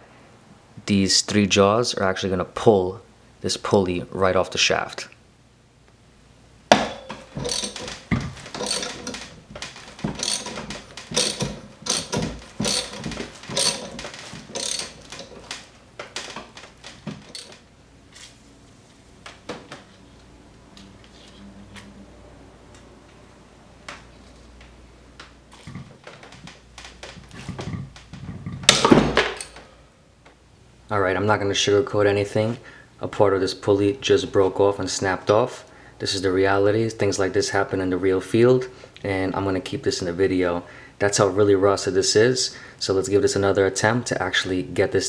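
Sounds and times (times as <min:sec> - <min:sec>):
ratchet wrench clicking: 0:07.4 - 0:09.3, 0:10.0 - 0:15.4.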